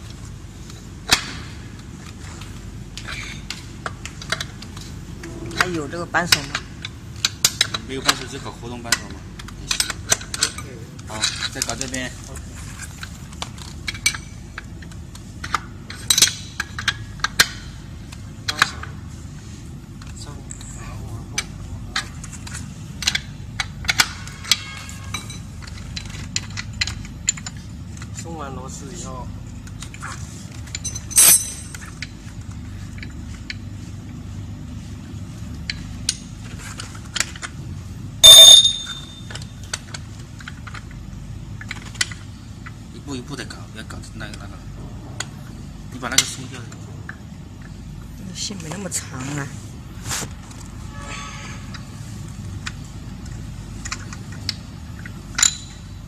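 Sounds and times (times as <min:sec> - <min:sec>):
steady low hum: 0:00.0 - 0:56.0
metal parts clinking: 0:30.6 - 0:32.1, 0:38.2 - 0:40.9, 0:53.8 - 0:56.0
wrench clinking on metal: 0:30.7 - 0:31.9, 0:38.2 - 0:39.5, 0:55.3 - 0:55.9
loud ringing metal clanks: 0:30.8 - 0:31.8, 0:38.2 - 0:39.3.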